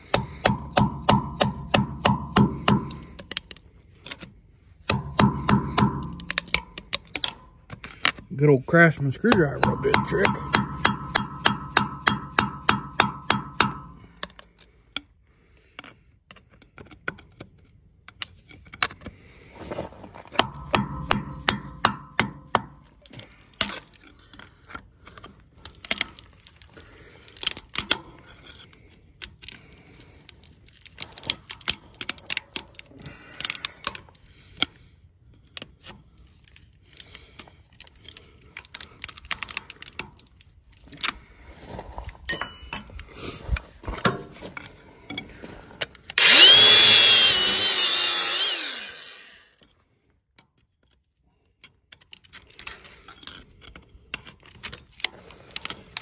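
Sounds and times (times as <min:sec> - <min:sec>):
hammer blows on metal ringing: 0:09.3 - 0:14.0.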